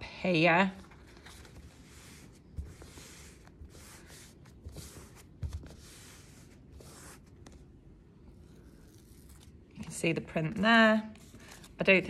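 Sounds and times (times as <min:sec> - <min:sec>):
paper swishing and rustling: 0:00.8 - 0:07.6.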